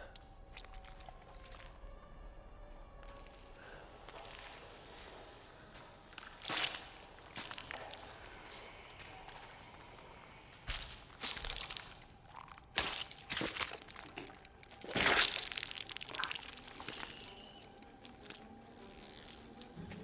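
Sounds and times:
sharp clicks and crunches: 12.7 - 19.8.

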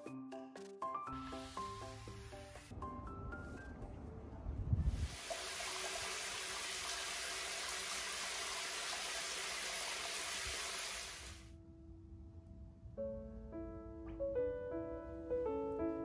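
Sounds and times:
soft background music: 0.0 - 5.1, 11.5 - 16.0
shower spraying into water: 1.2 - 2.7, 4.9 - 11.5.

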